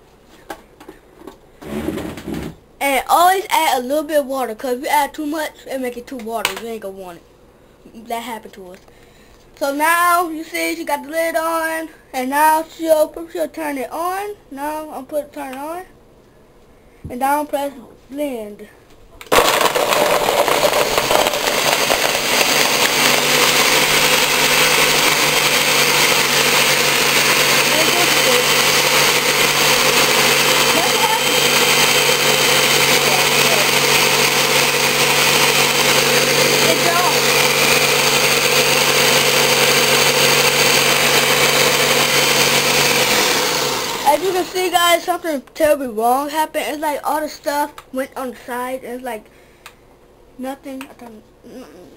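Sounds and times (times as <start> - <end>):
fruit knocking in blender: 19.3 - 44.3
blender motor whirring: 19.3 - 44.7.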